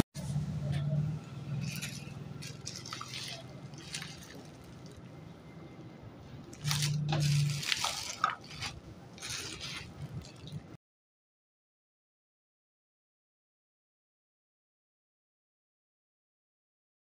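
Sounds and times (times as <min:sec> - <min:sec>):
plastic wrap crinkling: 0:01.5 - 0:05.2, 0:06.4 - 0:10.8.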